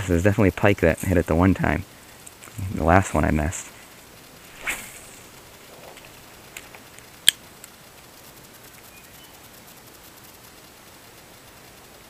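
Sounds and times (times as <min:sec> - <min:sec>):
faint steady hiss: 0:00.0 - 0:12.0
sharp reel click: 0:02.2 - 0:12.0
brief rush of noise: 0:04.5 - 0:06.2.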